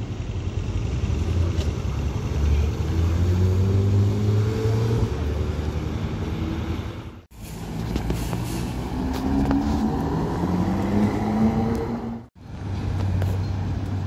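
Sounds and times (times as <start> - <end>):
city traffic: 0.0 - 14.0
car engine accelerating: 0.4 - 7.2, 8.8 - 12.3.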